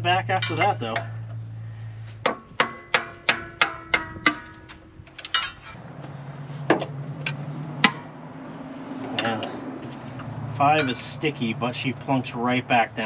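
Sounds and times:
low steady hum: 0.0s - 13.0s
hammer striking metal valve: 2.2s - 4.7s.

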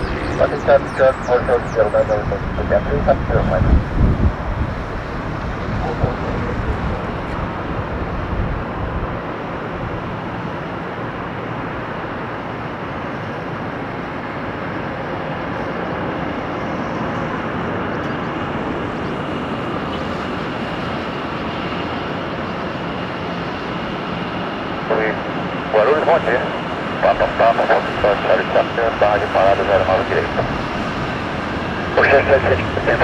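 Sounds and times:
faint high whine: 0.0s - 3.8s, 13.0s - 33.0s
jet engines rushing: 0.0s - 33.0s.

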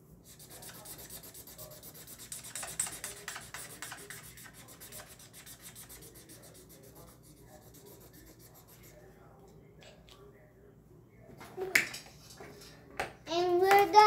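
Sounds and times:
marker scribbling on paper: 0.2s - 9.0s.

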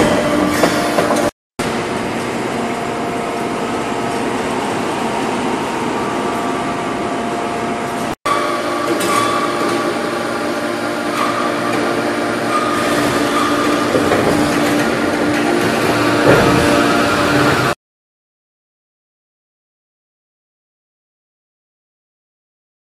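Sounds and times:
forge machinery din: 0.0s - 17.8s
steady machine hums: 0.0s - 17.8s.

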